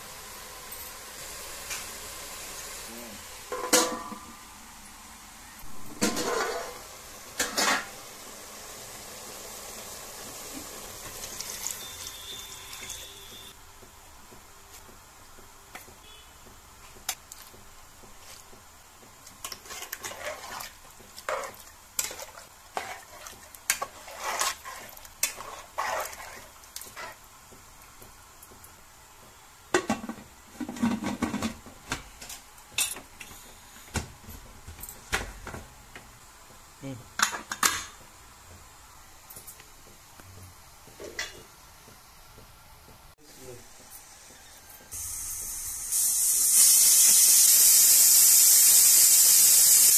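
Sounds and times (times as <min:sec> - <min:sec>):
ladle clinking and scraping pot: 0:06.0 - 0:06.8, 0:19.4 - 0:27.2
liquid sloshing in pot: 0:19.3 - 0:27.2.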